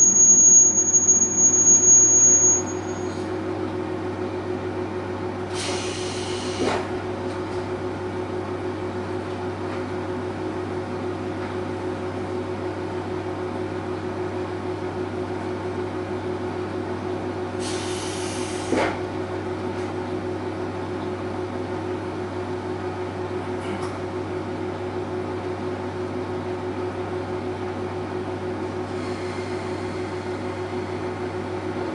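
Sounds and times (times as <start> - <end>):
diesel engine idling: 0.0 - 31.9.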